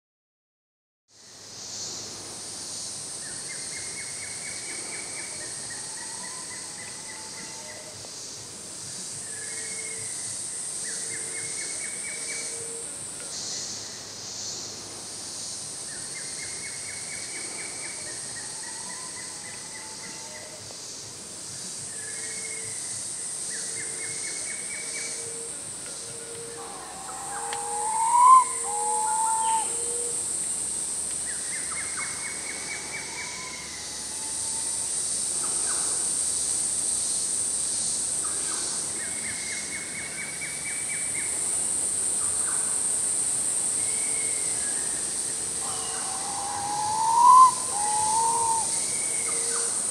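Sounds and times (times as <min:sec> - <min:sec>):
high-pitched insect drone: 0:02.7 - 0:49.9
birds trilling: 0:26.4 - 0:30.1, 0:45.6 - 0:49.6
two-note whistled bird call: 0:26.4 - 0:30.1, 0:45.7 - 0:48.8.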